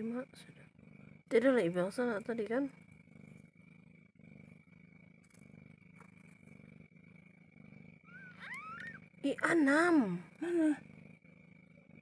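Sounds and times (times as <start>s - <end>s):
cat purring: 0.0s - 12.0s
kitten squeaking: 8.0s - 9.0s.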